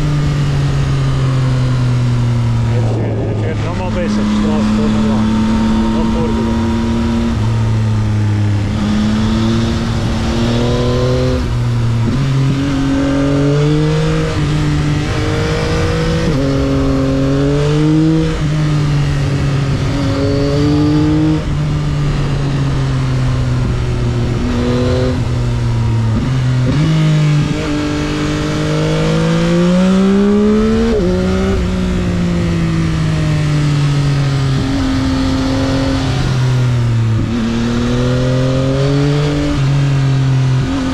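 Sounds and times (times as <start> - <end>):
wind rush on microphone: 2.1 - 12.9.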